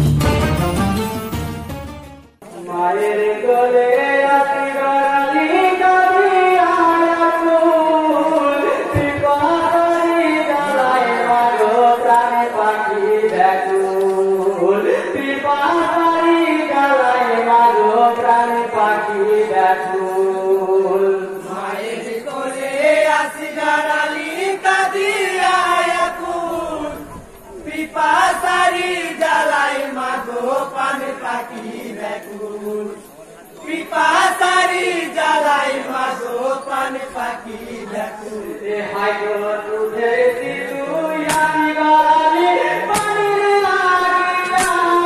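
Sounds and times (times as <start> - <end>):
intro music: 0.0 - 2.5
men chanting: 2.4 - 45.0.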